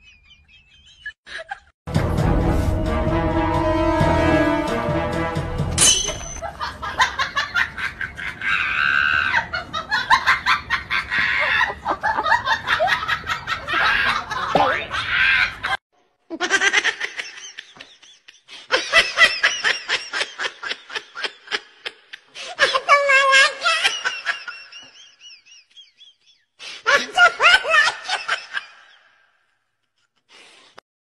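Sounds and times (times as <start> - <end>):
people laughing: 0.0 - 1.8, 6.4 - 29.1.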